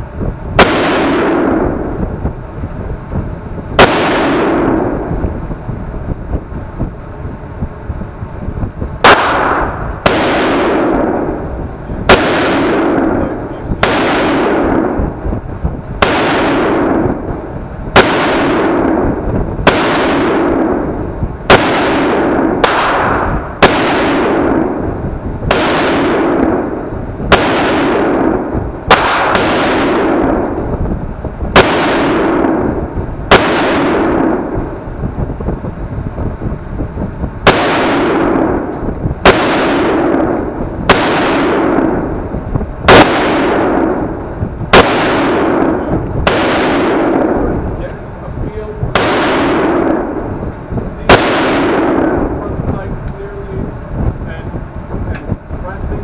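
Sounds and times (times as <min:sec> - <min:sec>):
rifle shots echoing indoors: 0:00.6 - 0:02.1, 0:03.8 - 0:05.4, 0:09.0 - 0:15.3, 0:16.0 - 0:30.8, 0:31.5 - 0:35.0, 0:37.4 - 0:47.9, 0:48.9 - 0:52.9.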